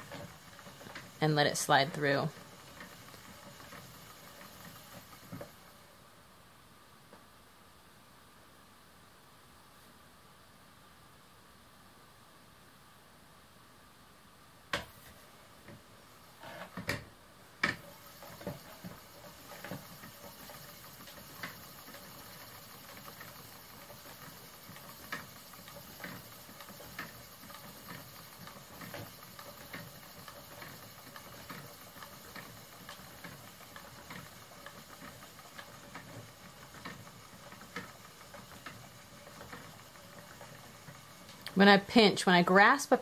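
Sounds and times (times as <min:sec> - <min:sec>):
spinning wheel knocking: 0:00.0 - 0:05.8, 0:17.6 - 0:43.0.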